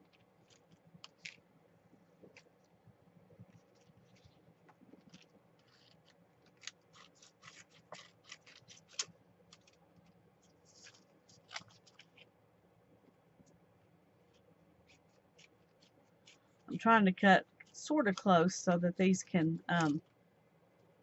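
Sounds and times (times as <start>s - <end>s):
scissors snipping paper: 0.0s - 1.4s, 5.0s - 9.8s, 10.6s - 12.3s, 19.7s - 20.0s.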